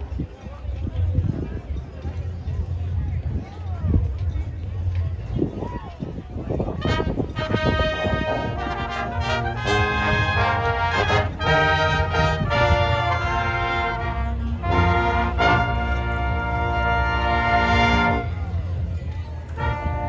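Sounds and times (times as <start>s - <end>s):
brass chords: 6.8s - 18.8s, 19.5s - 20.0s.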